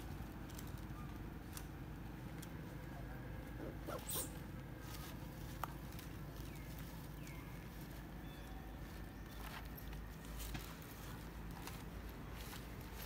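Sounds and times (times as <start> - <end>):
baby monkey high cries: 3.6 - 4.4.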